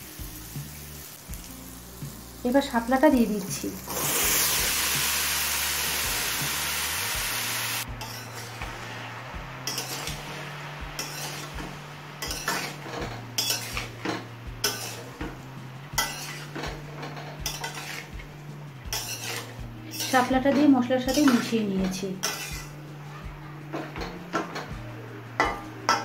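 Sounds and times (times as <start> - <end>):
food sizzling in hot pan: 0.0 - 20.3, 22.2 - 22.9
metal spatula scraping pan: 8.0 - 9.0, 9.6 - 15.2, 16.0 - 18.2, 18.9 - 22.8.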